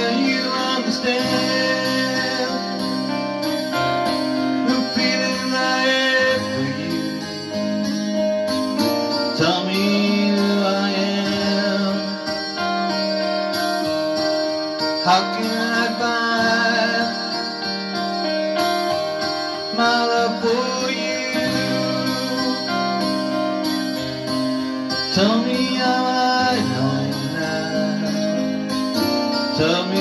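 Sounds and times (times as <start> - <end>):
electronic keyboard music: 0.0 - 30.0.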